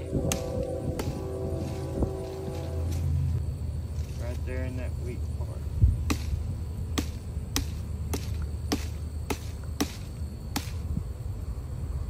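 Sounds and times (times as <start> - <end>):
low steady rumble: 0.0 - 12.0
sharp knocks on tree trunk: 6.0 - 6.4, 7.0 - 10.8.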